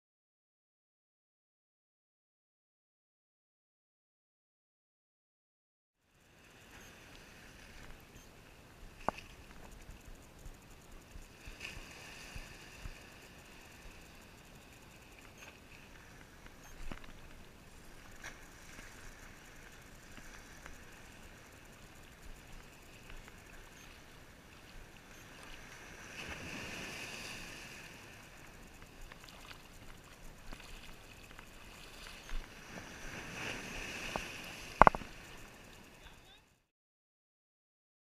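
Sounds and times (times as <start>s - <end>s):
seawater lapping and sloshing: 15.0s - 36.1s.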